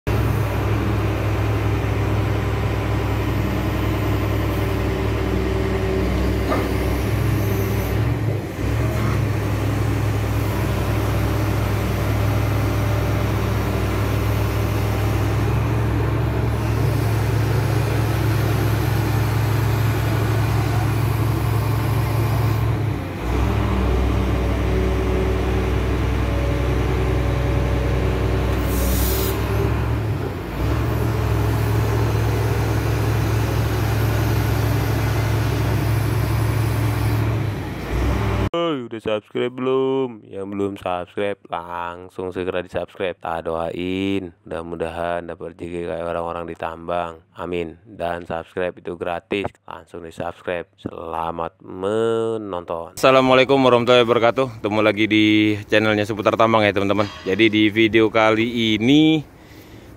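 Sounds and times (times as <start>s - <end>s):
excavator diesel engine running: 0.1s - 38.5s, 53.0s - 59.9s.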